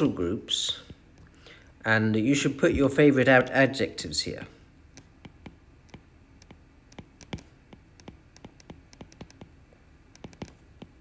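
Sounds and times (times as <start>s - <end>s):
stylus tapping on glass screen: 5.0s - 9.6s, 10.2s - 11.0s.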